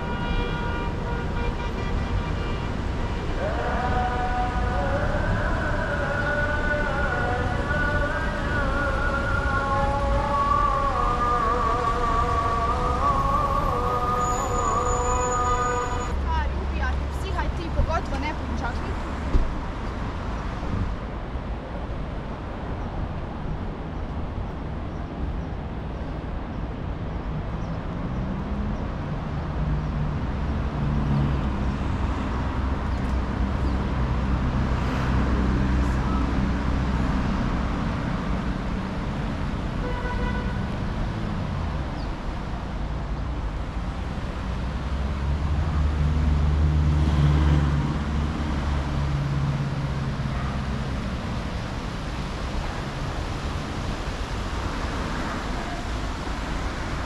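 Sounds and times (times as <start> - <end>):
vehicles passing: 0.0 - 57.0.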